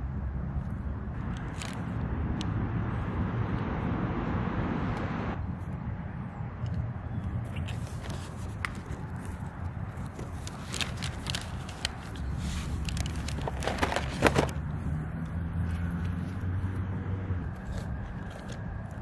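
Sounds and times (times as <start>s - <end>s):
items handled in wicker basket: 7.6s - 14.8s.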